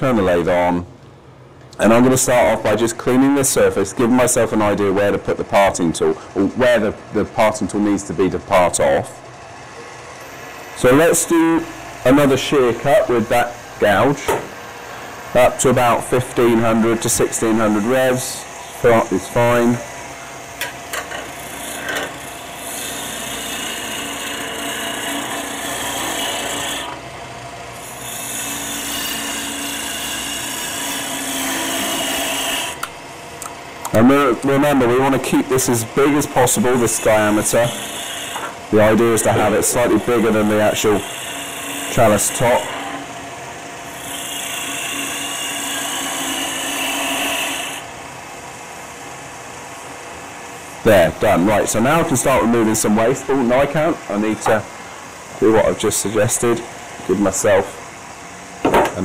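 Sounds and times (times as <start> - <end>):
wood lathe cutting: 14.9 - 20.1, 21.2 - 27.2, 27.8 - 32.9, 34.0 - 47.9.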